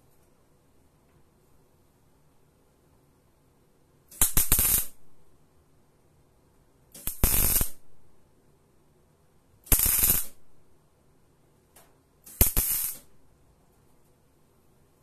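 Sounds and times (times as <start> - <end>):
welding arc bursts: 4.1 - 5.0, 7.0 - 7.8, 9.7 - 10.4, 12.3 - 13.1.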